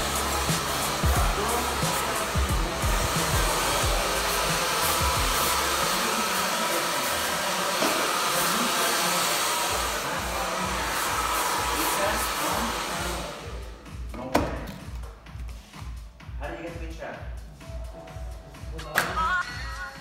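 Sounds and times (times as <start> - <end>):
background music: 0.0 - 8.7, 9.3 - 20.0
hair dryer blowing: 0.0 - 13.8.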